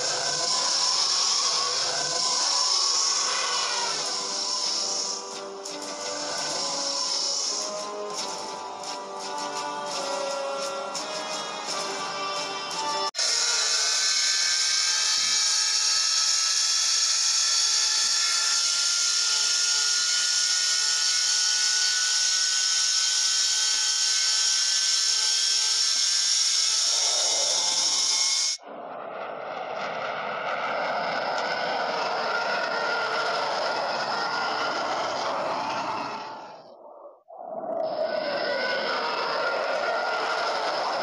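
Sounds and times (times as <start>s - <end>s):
rushing hiss with rising tone: 0.0s - 12.0s
dull rushing noise: 28.6s - 36.7s.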